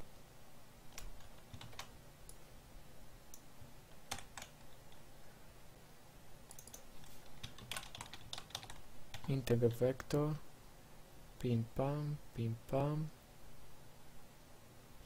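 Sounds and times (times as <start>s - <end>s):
faint keyboard keystrokes and clicks: 0.9s - 2.4s, 3.3s - 5.0s, 6.4s - 10.2s.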